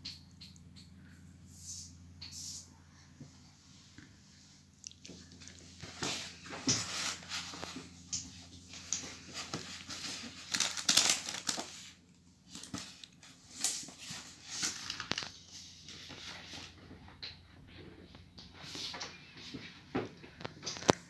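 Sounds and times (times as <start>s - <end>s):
cardboard scraping and rustling: 5.8s - 11.8s
tape ripping: 9.5s - 11.8s.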